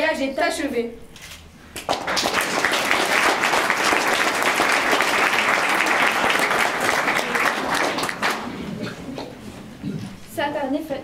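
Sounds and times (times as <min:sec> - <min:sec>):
audience applauding: 0:01.8 - 0:08.6.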